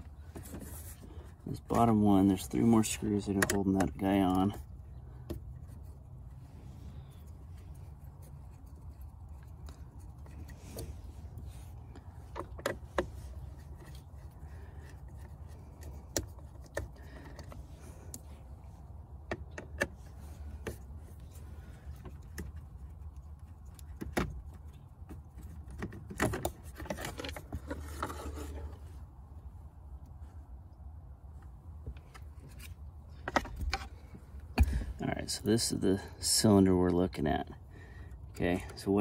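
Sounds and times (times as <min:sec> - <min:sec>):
steady low hum: 0:00.0 - 0:39.0
plastic scraping and rattling: 0:23.8 - 0:28.9.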